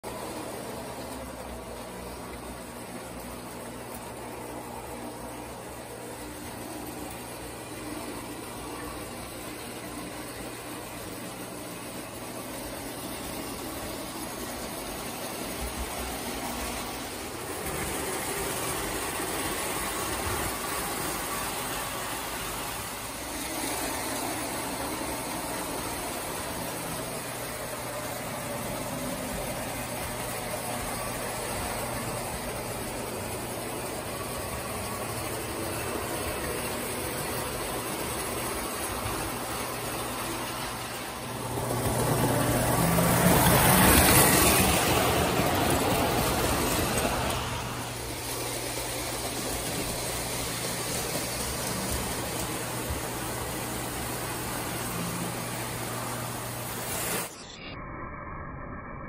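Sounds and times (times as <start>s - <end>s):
wheels rattling over rails: 12.5s - 56.2s
toy train motor whirring: 34.1s - 55.8s.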